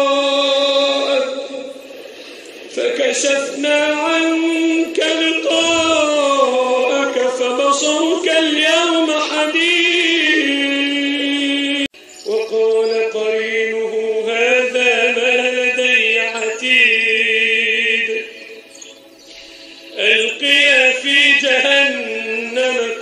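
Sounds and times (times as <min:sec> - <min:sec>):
man chanting melodically: 0:00.0 - 0:19.0, 0:19.8 - 0:23.0.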